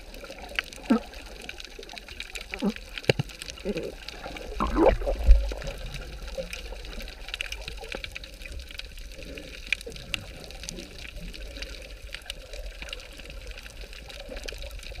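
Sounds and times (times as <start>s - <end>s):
muffled underwater noise: 0.0s - 15.0s
sharp underwater clicks: 0.4s - 8.9s.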